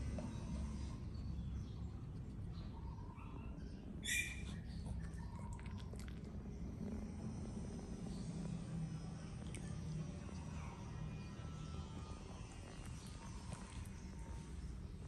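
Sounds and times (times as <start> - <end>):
low steady hum: 0.0 - 15.0
puppy squeaking: 4.0 - 4.6.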